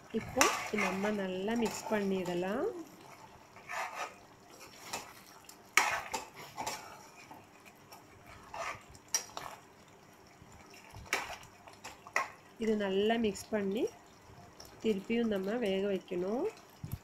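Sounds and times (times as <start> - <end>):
metal ladle scraping pan: 0.2 - 2.5, 3.5 - 7.2, 8.3 - 9.6.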